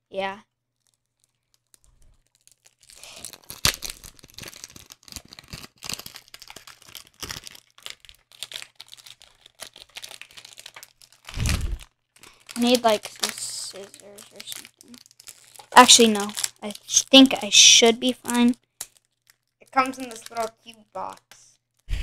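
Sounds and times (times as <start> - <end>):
plastic shrink wrap crinkling: 0.7 - 21.9
loud muffled thud: 11.4 - 11.8.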